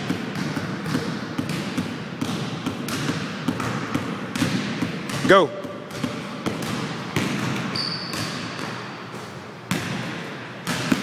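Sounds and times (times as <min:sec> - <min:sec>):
basketball bouncing on wooden floor: 0:00.0 - 0:08.9, 0:09.7 - 0:11.0
thin high squeak: 0:07.8 - 0:08.4.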